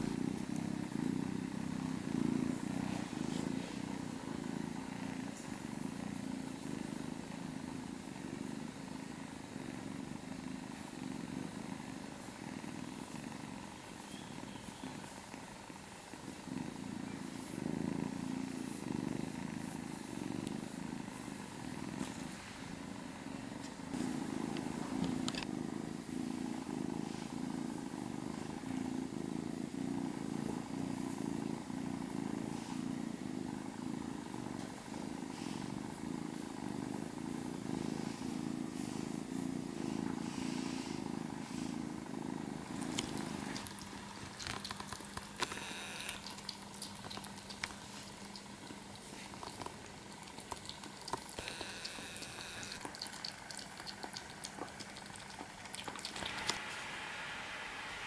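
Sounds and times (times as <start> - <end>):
kitten purring: 0.0 - 58.0
kitten eating from metal bowl: 43.2 - 56.6.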